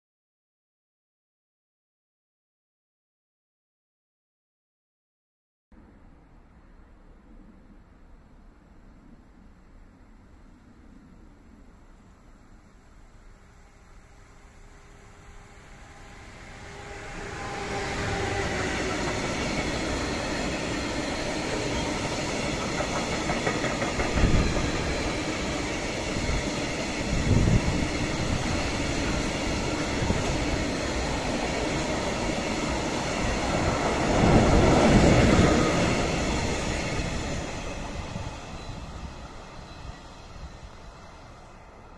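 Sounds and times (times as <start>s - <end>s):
electric locomotive passing: 8.6s - 41.9s
train wheel clatter: 16.8s - 39.4s.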